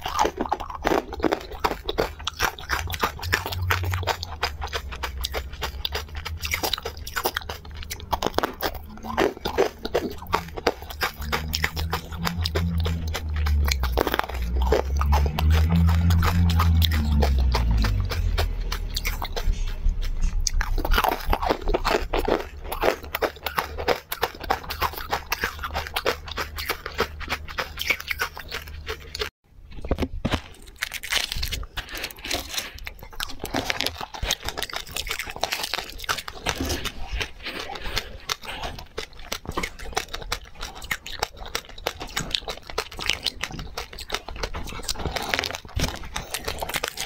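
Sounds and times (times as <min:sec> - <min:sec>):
chewing and crunching candy: 0:00.0 - 0:47.0
low steady drone: 0:02.0 - 0:27.5.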